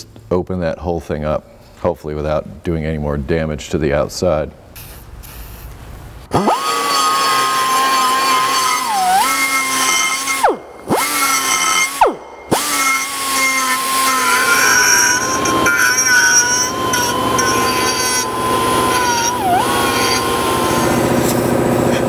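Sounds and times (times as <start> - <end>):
pneumatic grinder grinding metal: 6.3 - 22.0.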